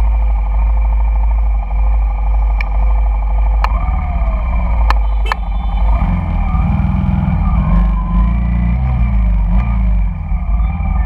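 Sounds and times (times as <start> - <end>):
scooter engines idling: 0.0 - 8.2
motorcycle engine idling: 0.0 - 11.0
sharp clicks: 3.6 - 5.5.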